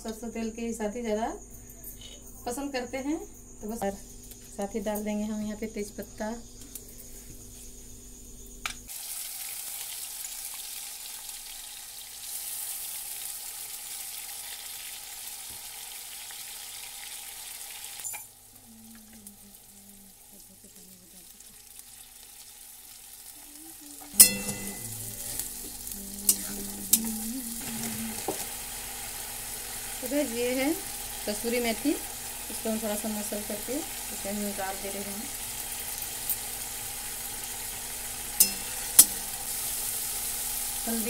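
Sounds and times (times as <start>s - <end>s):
paste sizzling in hot oil: 8.9s - 41.0s
spatula clanking against pan: 24.1s - 24.9s, 38.4s - 39.3s.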